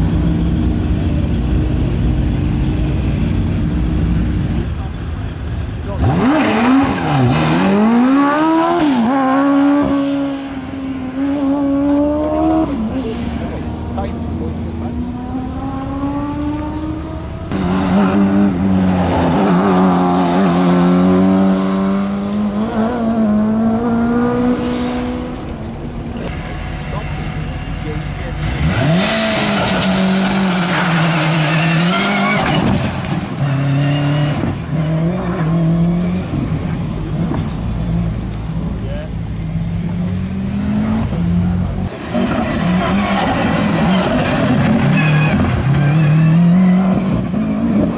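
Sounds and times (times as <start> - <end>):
racing car engine revving: 0.3 - 47.9.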